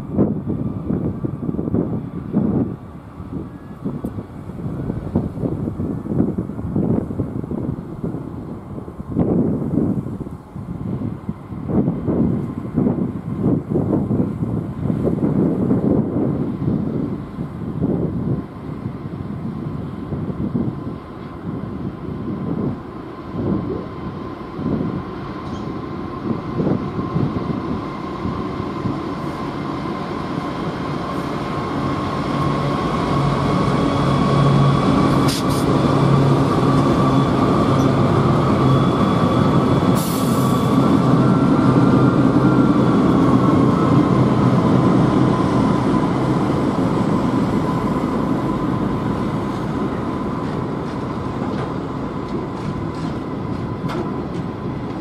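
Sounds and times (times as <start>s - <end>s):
diesel locomotive engine hum: 0.0s - 55.0s
steady high whine: 16.0s - 55.0s.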